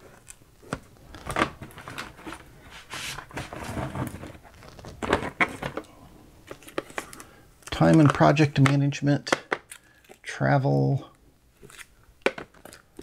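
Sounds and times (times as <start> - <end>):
rustling: 0.0 - 8.2.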